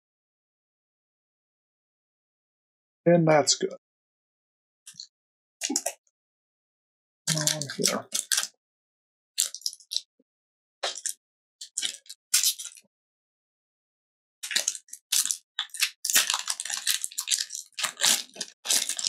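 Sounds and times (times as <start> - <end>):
cards and packaging rustling: 7.3 - 8.5, 14.4 - 19.0.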